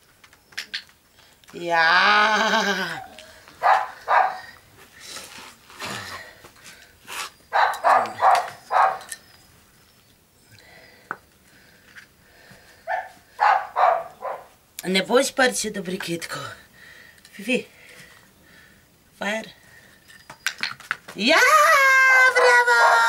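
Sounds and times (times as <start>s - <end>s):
small dog barking: 3.6s - 4.4s, 7.5s - 9.1s, 12.9s - 14.5s.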